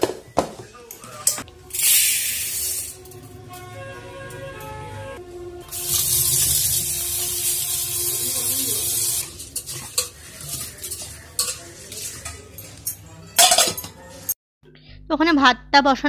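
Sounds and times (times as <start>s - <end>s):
tap water running into pot: 5.7s - 10.6s.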